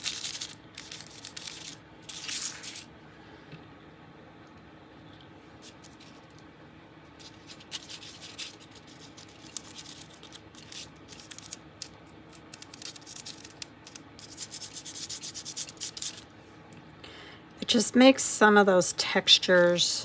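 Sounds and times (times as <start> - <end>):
hands rubbing on paper: 7.2 - 11.6, 12.6 - 16.2.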